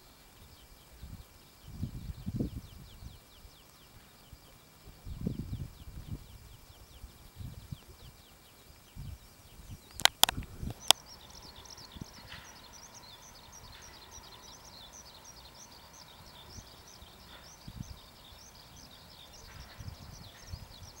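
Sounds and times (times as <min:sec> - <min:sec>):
birds chirping and singing: 0:01.6 - 0:21.0
sharp clicks: 0:09.9 - 0:11.2.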